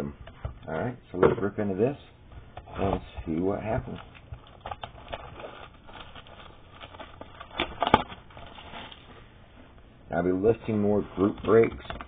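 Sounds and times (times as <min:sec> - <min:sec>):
cardboard rustling: 0:02.4 - 0:09.2, 0:10.5 - 0:12.0
plastic wrap crackling: 0:03.3 - 0:09.1.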